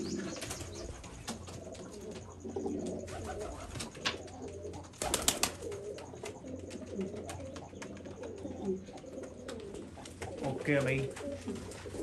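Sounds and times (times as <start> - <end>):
pigeons cooing: 0.0 - 12.0
wing flaps: 5.0 - 5.9.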